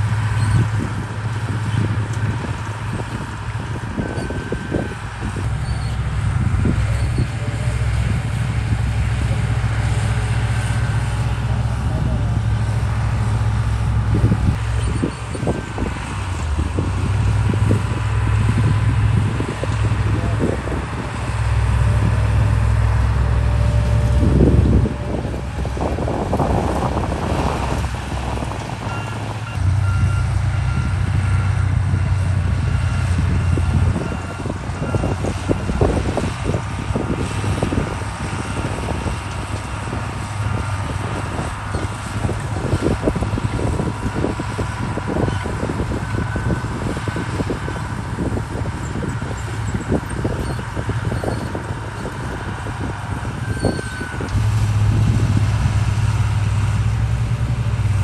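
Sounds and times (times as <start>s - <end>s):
heavy machinery diesel engine: 0.0s - 58.0s
reversing alarm beeping: 28.9s - 38.9s.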